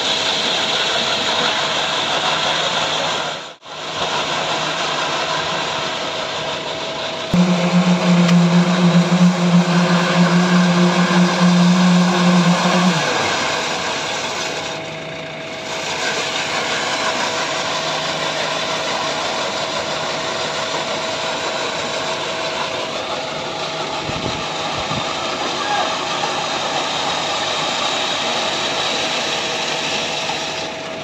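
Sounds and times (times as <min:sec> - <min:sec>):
backhoe engine running: 0:03.8 - 0:31.0
paving machine vibrators: 0:04.1 - 0:31.0
low steady hum: 0:07.4 - 0:14.6.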